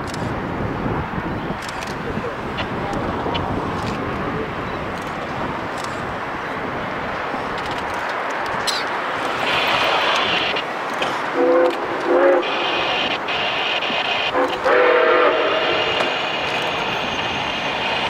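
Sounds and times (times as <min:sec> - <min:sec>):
train rumble: 0:00.0 - 0:18.0
steam locomotive whistle blasts: 0:11.4 - 0:16.3.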